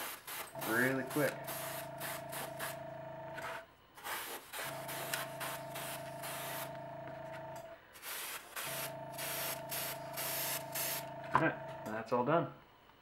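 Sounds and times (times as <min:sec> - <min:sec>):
airbrush spraying in hissing bursts: 0:00.0 - 0:02.8, 0:04.0 - 0:06.7, 0:08.0 - 0:11.1
small compressor humming: 0:00.0 - 0:12.1.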